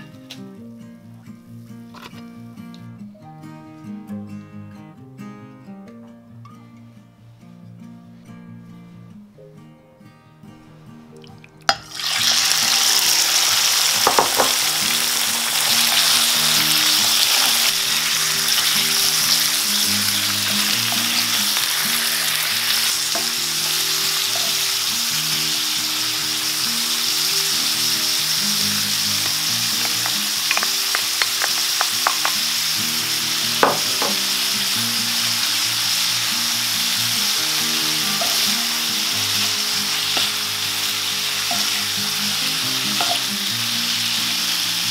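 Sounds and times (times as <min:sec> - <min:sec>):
liver sizzling in frying pan: 0:11.7 - 0:44.9
spatula tapping pan: 0:29.2 - 0:32.4, 0:33.6 - 0:34.3.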